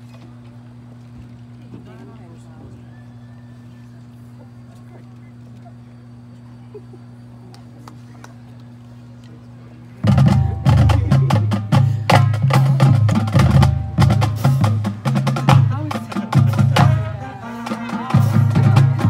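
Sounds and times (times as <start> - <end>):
low brass notes: 10.0 - 19.0.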